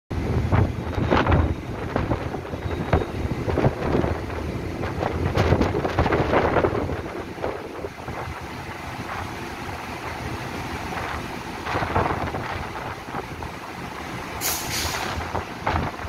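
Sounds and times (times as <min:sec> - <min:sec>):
train equipment humming: 0:00.2 - 0:16.0
air brake hiss: 0:14.4 - 0:15.2.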